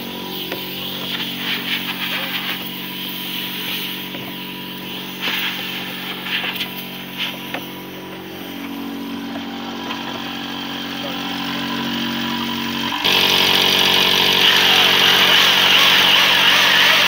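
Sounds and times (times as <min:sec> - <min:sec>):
electric paddle mixer stirring: 0:00.0 - 0:17.0
spraying rig motor running: 0:00.0 - 0:17.0.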